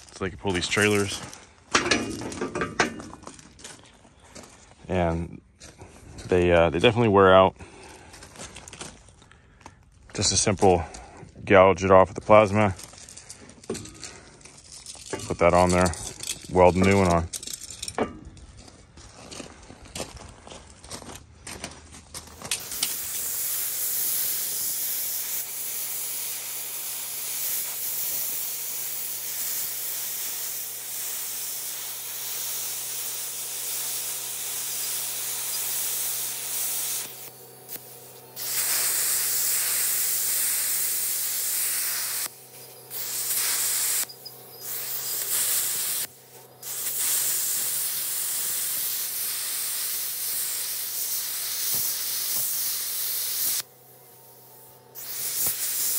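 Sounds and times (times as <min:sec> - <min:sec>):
plasma cutter arc hissing: 0:22.4 - 0:55.9.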